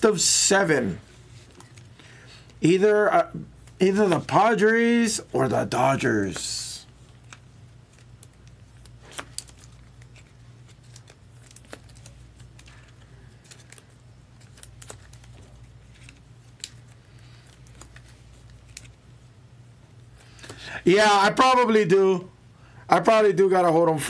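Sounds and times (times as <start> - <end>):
low steady hum: 0.0 - 24.0
cards and packaging rustling: 0.9 - 2.8, 3.4 - 19.3.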